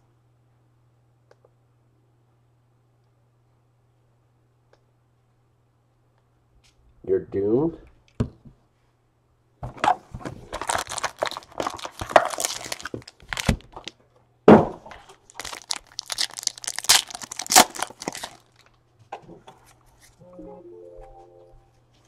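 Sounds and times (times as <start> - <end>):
foil packs crinkling and ripping: 10.4 - 14.0, 15.1 - 18.7.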